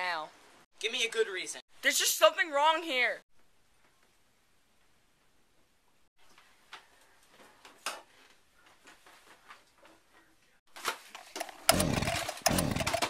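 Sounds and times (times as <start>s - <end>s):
chainsaw buzzing: 11.2s - 13.0s
chainsaw handling clicks: 11.2s - 13.0s.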